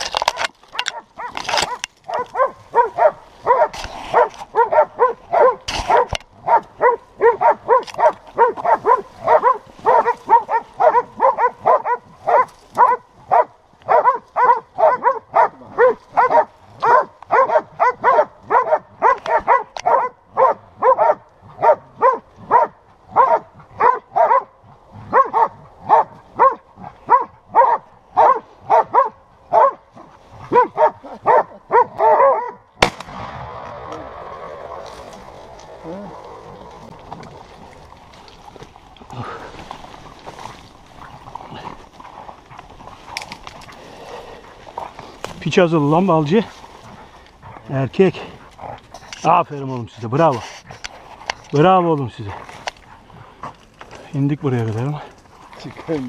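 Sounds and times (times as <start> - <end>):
dog barking: 0.8 - 32.7.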